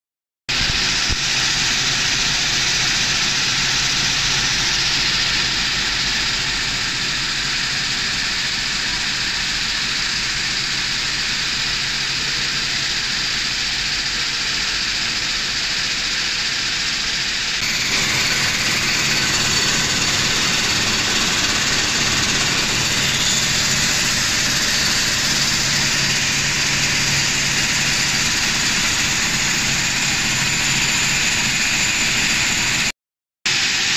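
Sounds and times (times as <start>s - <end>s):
coffee roaster running: 0.5s - 32.9s, 33.5s - 33.9s.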